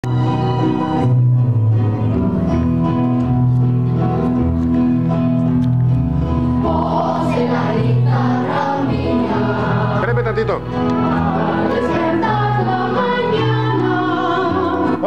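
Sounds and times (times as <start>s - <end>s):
instrumental accompaniment: 0.0s - 15.0s
children singing: 6.6s - 10.1s, 10.8s - 15.0s.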